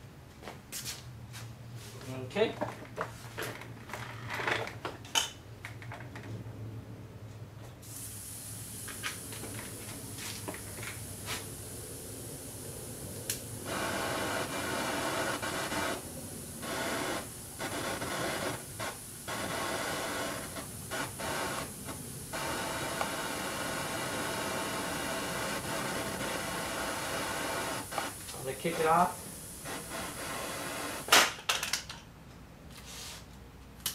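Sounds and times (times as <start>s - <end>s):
torch jet hissing: 7.8s - 31.3s.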